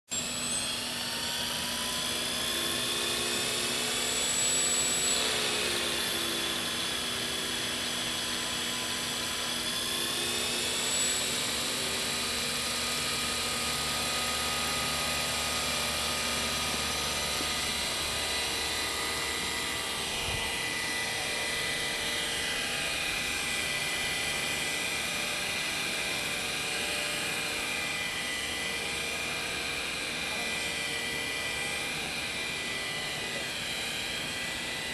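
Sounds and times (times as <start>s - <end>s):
rc helicopter motor whining: 0.1s - 34.9s.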